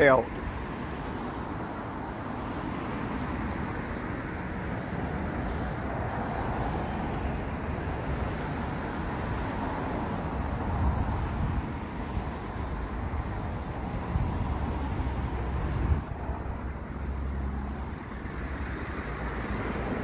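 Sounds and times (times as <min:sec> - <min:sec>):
street traffic rumble: 0:00.0 - 0:20.0.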